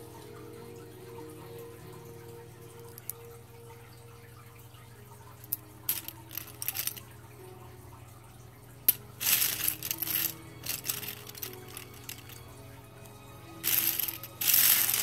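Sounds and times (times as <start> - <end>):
plastic pens clicking and rattling: 5.9 - 7.0, 9.2 - 12.5, 13.6 - 15.0.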